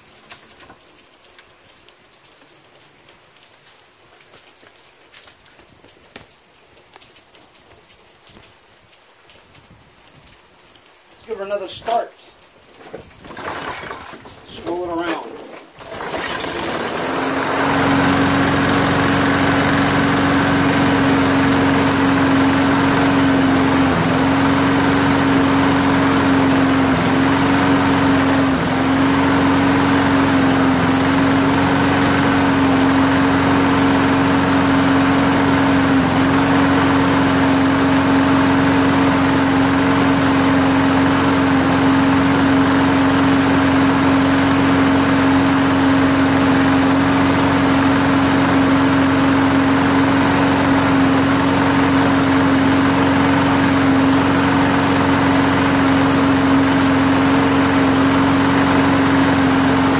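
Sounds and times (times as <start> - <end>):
lawn mower engine running: 12.8 - 59.9.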